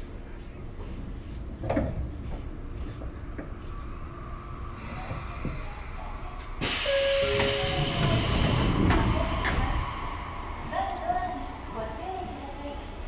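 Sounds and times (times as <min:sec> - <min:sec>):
train rumble: 0:00.0 - 0:13.0
compressed air hiss: 0:06.6 - 0:08.3.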